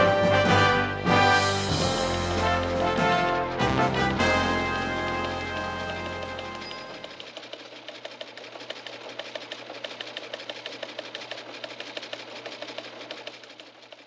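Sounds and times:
small machine clattering: 0:04.9 - 0:14.0.

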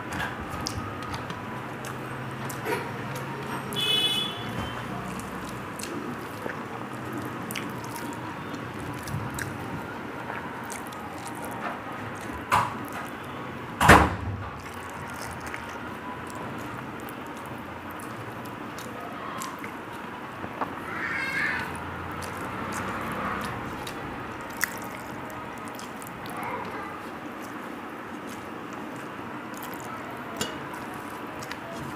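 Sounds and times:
wet chewing: 0:00.0 - 0:13.8, 0:14.4 - 0:31.9
fingers squishing rice: 0:00.4 - 0:13.3, 0:14.6 - 0:31.9
small wet clicks: 0:05.0 - 0:09.8, 0:14.6 - 0:20.8, 0:21.5 - 0:31.9.

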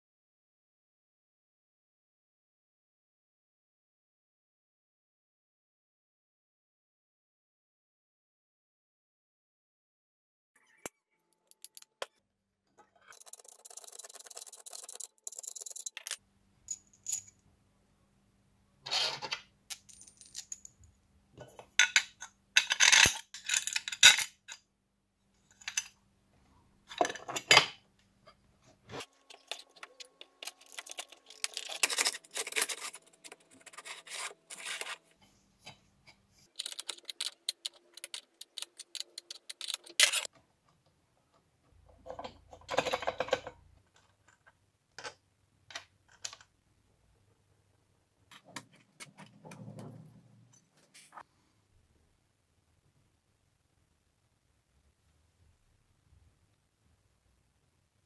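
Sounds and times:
metal parts clinking on workbench: 0:21.8 - 0:24.6, 0:25.5 - 0:26.0, 0:29.3 - 0:35.0, 0:36.6 - 0:40.3.

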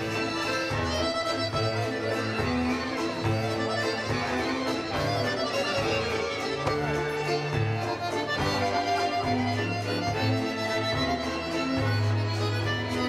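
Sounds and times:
accordion melody: 0:00.0 - 0:13.0
orchestra strings: 0:00.0 - 0:13.0.

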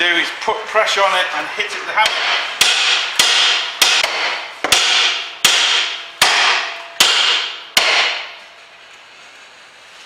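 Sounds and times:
hammer blows ringing on metal: 0:02.0 - 0:08.5.

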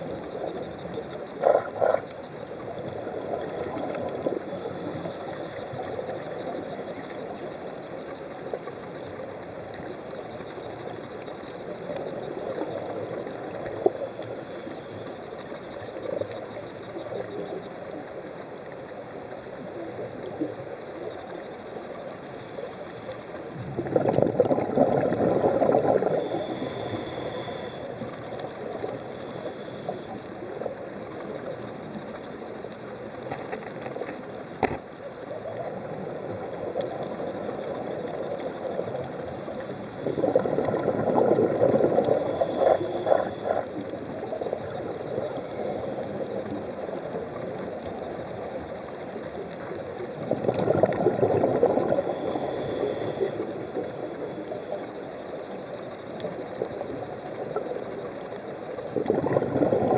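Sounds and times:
muffled underwater noise: 0:00.0 - 0:59.9
rush of exhaled bubbles: 0:23.5 - 0:27.8, 0:39.9 - 0:46.0, 0:50.0 - 0:54.6, 0:58.8 - 0:59.9.

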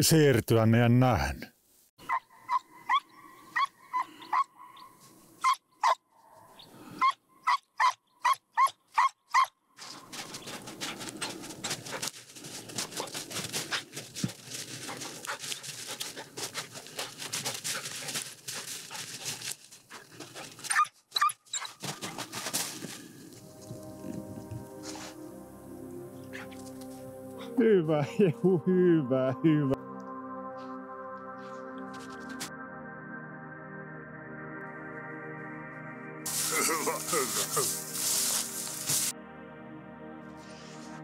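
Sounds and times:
hound barking: 0:02.0 - 0:04.5
footsteps crunching through snow: 0:09.8 - 0:20.8, 0:21.7 - 0:25.2, 0:36.3 - 0:39.1.

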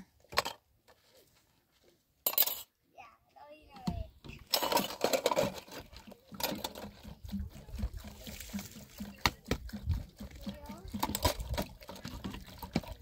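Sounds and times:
water pouring and splashing: 0:04.5 - 0:13.0.

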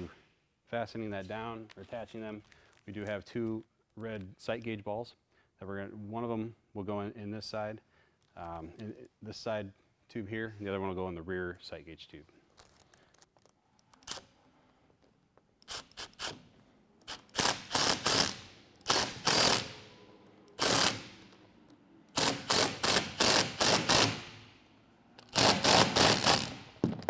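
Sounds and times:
impact driver rattling: 0:22.1 - 0:24.3, 0:25.2 - 0:27.0.

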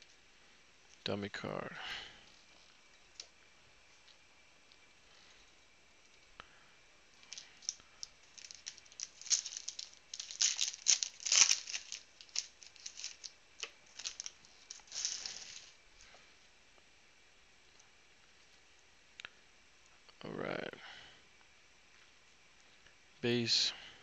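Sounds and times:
foil wrapper tearing and crinkling: 0:07.3 - 0:15.8.

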